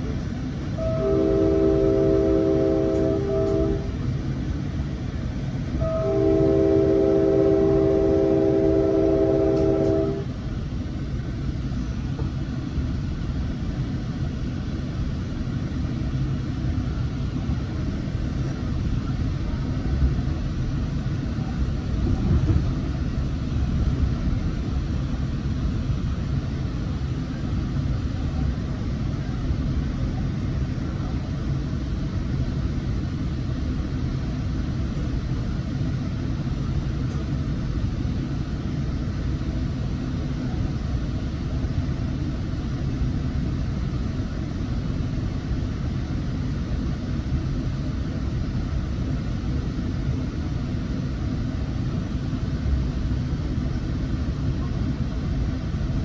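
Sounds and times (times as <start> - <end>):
train rumble and rail noise: 0.0 - 56.0
train horn chord: 0.8 - 4.1, 5.8 - 10.3.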